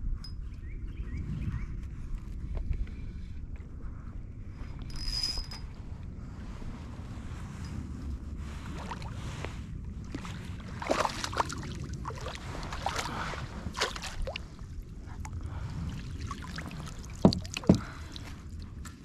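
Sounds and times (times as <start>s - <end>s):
steady low rumble: 0.0s - 19.0s
knocks and clicks in kayak: 17.2s - 18.2s.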